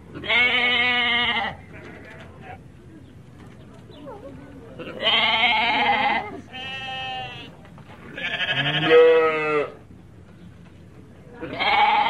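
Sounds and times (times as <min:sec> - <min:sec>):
sheep bleating: 0:00.2 - 0:02.6, 0:04.8 - 0:07.5, 0:08.1 - 0:09.8, 0:11.4 - 0:12.0.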